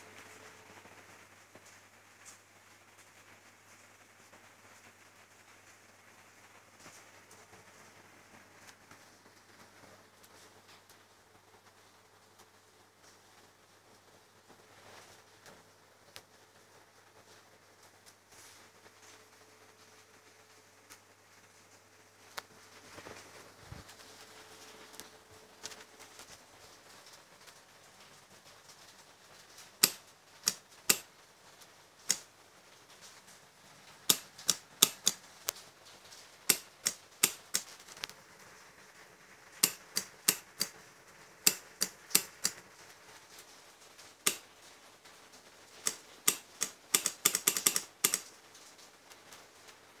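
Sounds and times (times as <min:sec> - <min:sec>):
sharp clicks: 0:29.8 - 0:31.1, 0:34.1 - 0:35.2, 0:36.5 - 0:38.2, 0:39.6 - 0:40.8, 0:41.4 - 0:42.6, 0:44.2 - 0:44.4, 0:45.8 - 0:48.3.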